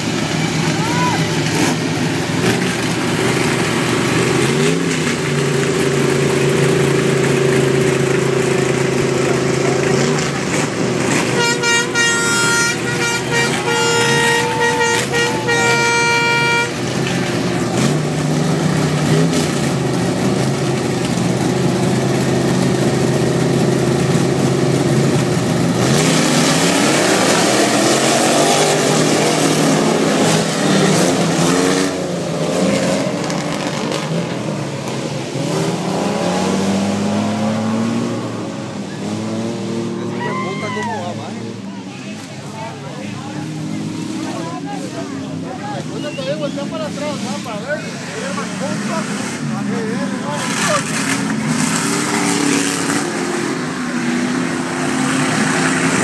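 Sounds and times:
race vehicle engines revving: 0.0s - 56.0s
horn sounding: 9.9s - 18.0s.

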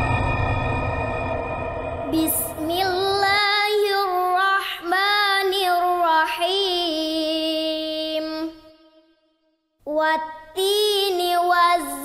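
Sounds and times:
synthesizer music pad: 0.0s - 4.2s.

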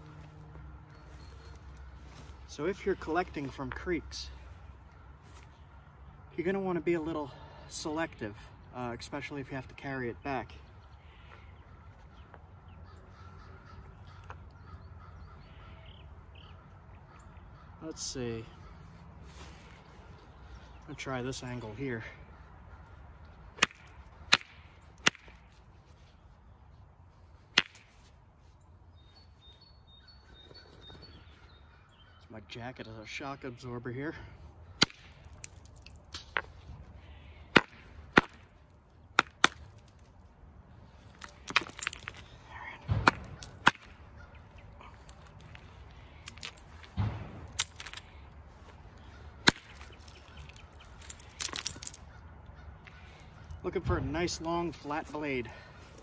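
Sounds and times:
stone striking flint cracks: 23.6s - 25.4s, 34.8s - 36.5s, 41.2s - 42.3s, 42.9s - 44.0s, 46.2s - 48.1s, 49.4s - 52.0s
sharp crack of flint: 34.8s - 36.5s, 49.4s - 52.0s
stone striking flint: 41.2s - 42.3s, 49.4s - 52.0s.

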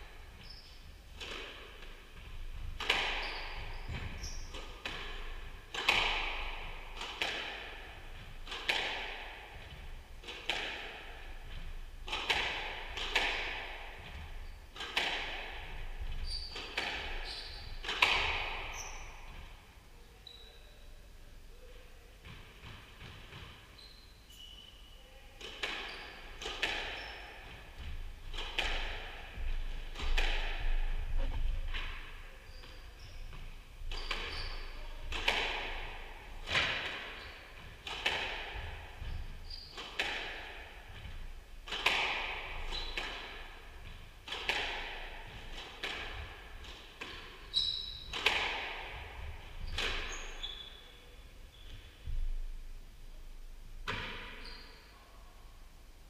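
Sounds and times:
shoe squeaks on wooden floor: 0.4s - 0.8s, 3.2s - 4.5s, 16.2s - 17.8s, 23.7s - 25.0s, 33.9s - 34.9s, 39.0s - 39.8s, 42.7s - 43.0s, 47.5s - 48.2s, 49.6s - 52.0s, 54.4s - 54.9s.

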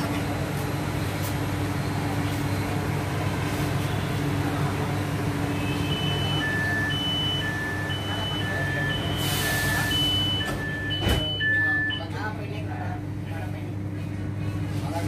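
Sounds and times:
train electric hum: 0.0s - 15.0s
two-tone door chime beeps: 5.9s - 12.1s.

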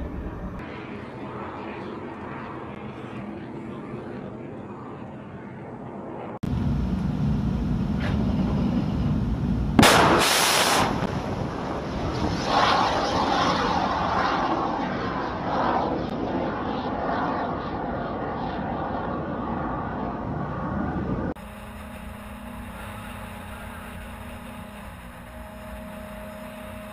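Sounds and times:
rocket motor roar: 6.4s - 26.9s
rocket ignition blast: 9.8s - 15.0s, 21.3s - 26.9s.

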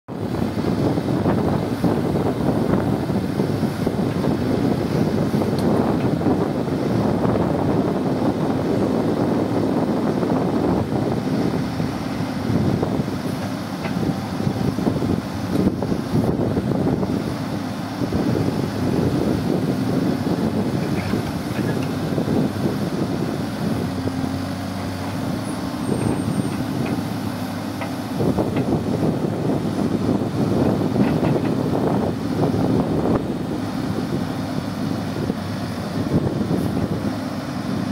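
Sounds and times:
diesel engine running: 0.1s - 37.9s.

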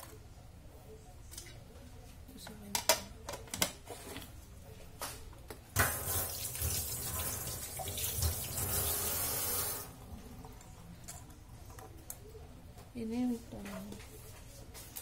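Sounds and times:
tap running into sink: 5.8s - 9.2s.

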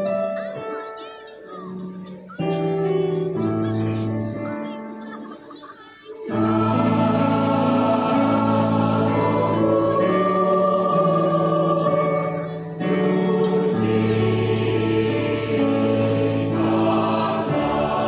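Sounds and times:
mixed choir singing held chords: 6.0s - 18.0s.

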